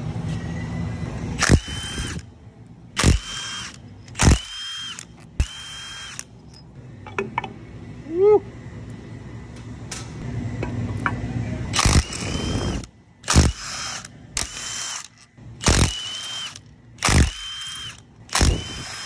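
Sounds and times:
cordless power driver spinning bolts: 0:01.4 - 0:02.3, 0:03.0 - 0:06.7, 0:11.7 - 0:19.0.

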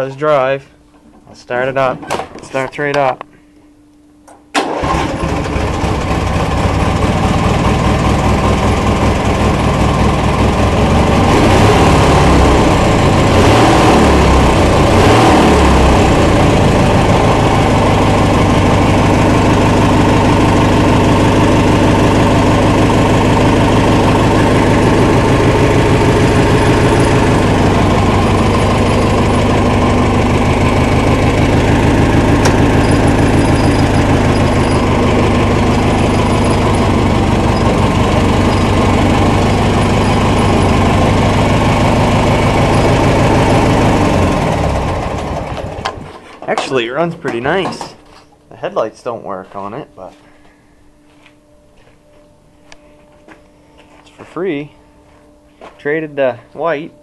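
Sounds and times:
garden tractor engine running: 0:04.5 - 0:48.2.

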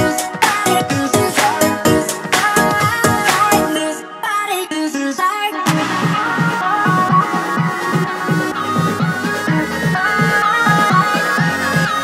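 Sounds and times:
electronic music with pulsing beat: 0:00.0 - 0:12.0.

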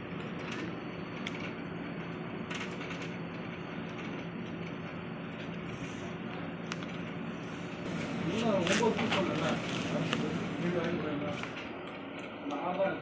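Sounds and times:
low background hum: 0:00.0 - 0:13.0
cardboard clicking and crinkling: 0:08.4 - 0:11.5.

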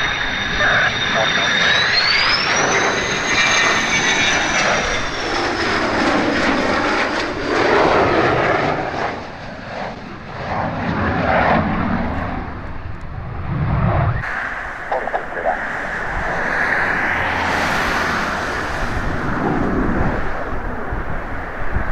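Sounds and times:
fighter jet roar and whine: 0:00.0 - 0:21.9.

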